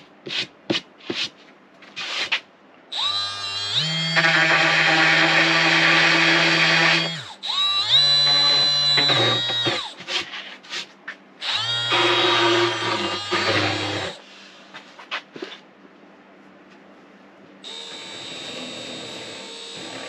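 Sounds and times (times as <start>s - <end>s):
orbital sander running: 3.0s - 9.9s, 17.7s - 20.0s.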